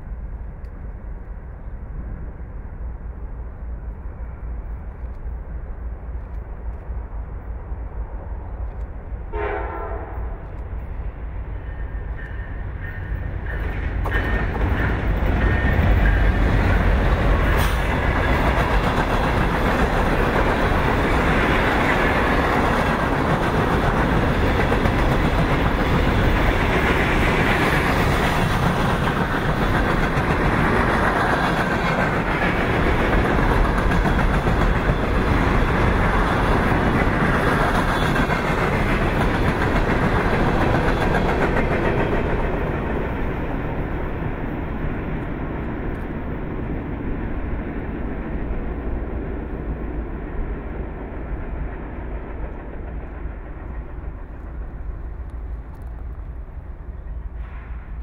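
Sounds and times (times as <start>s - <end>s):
diesel locomotives rumbling: 0.0s - 58.0s
steel wheels clattering on rails: 11.6s - 44.0s.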